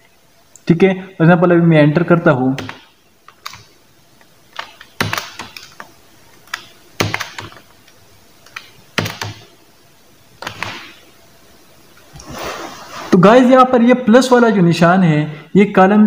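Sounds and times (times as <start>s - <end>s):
keyboard key clicks: 2.6s - 3.7s, 4.6s - 7.6s, 8.4s - 9.5s, 10.4s - 10.9s.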